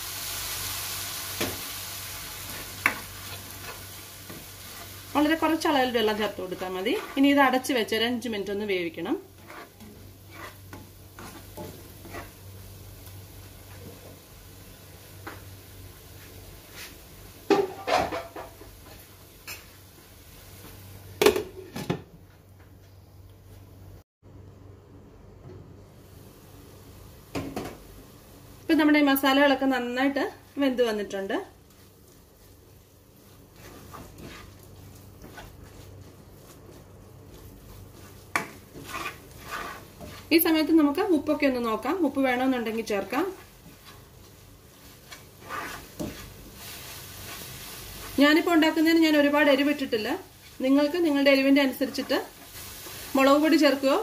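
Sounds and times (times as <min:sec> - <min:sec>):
soft taps and scrapes in pan: 0:33.5 - 0:40.3, 0:43.3 - 0:46.4.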